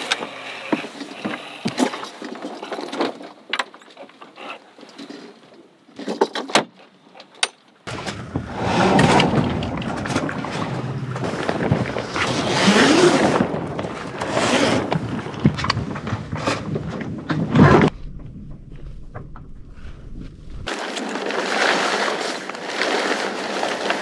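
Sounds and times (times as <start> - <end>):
wind and water rushing: 7.9 - 15.3.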